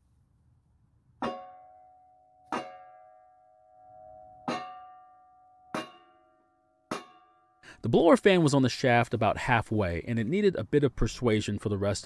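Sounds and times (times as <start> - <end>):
hammer strikes on wooden block: 1.2 - 1.6.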